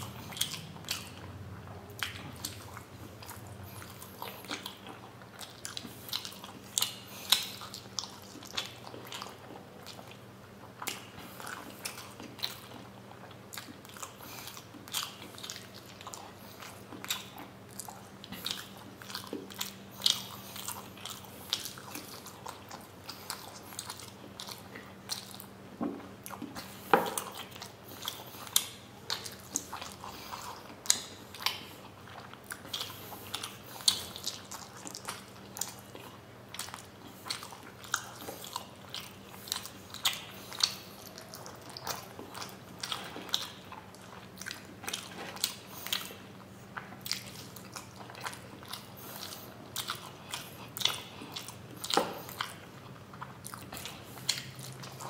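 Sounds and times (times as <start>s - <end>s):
faint low hum: 0.0s - 55.0s
man chewing food: 0.0s - 55.0s.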